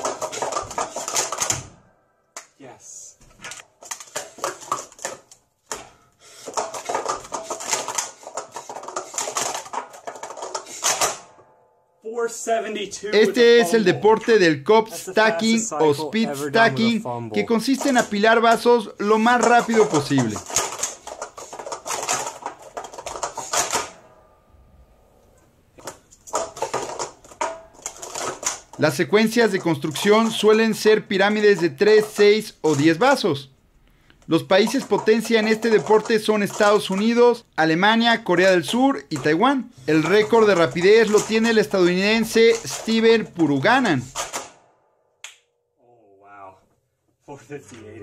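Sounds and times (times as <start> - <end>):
plastic cups clattering: 0.0 - 1.7, 3.3 - 11.3, 13.2 - 24.0, 25.8 - 44.5.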